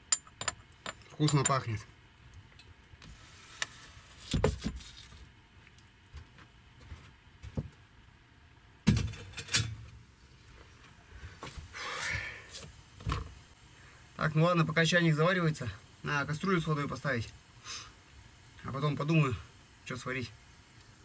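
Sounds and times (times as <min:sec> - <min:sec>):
objects knocking and clinking: 0:00.0 - 0:01.7
rustling scrape: 0:03.1 - 0:05.3.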